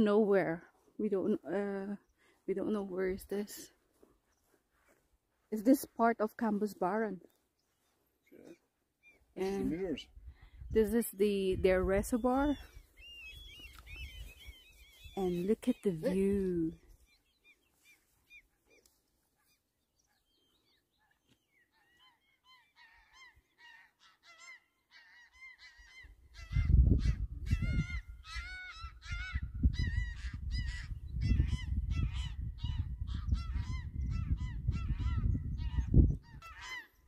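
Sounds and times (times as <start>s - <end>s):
geese honking: 33.2s - 37.0s.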